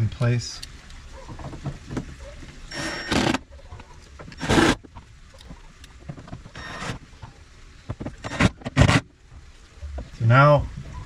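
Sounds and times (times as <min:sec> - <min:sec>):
cordless drill driving screws: 0:02.7 - 0:03.4, 0:04.4 - 0:04.8.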